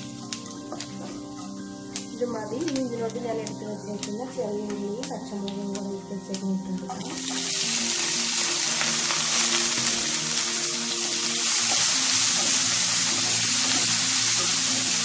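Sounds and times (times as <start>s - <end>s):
vegetables sizzling in oil: 6.8s - 15.0s.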